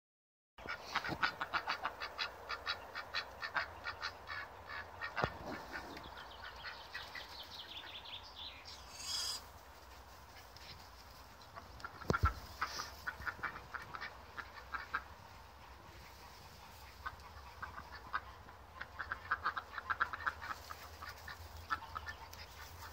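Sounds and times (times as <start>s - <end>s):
ducks quacking: 0.6s - 8.0s, 11.4s - 22.9s
rustling: 8.7s - 13.8s, 20.2s - 22.9s.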